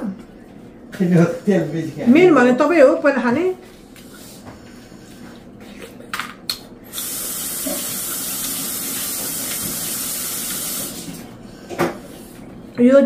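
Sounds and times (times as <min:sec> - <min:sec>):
water running from a tap: 0:06.9 - 0:11.2.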